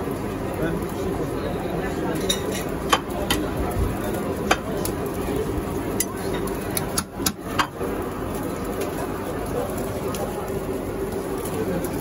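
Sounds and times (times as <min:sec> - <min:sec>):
kitchen din: 0:02.1 - 0:03.6, 0:04.4 - 0:05.0
metal tongs clinking on plate: 0:02.2 - 0:03.5.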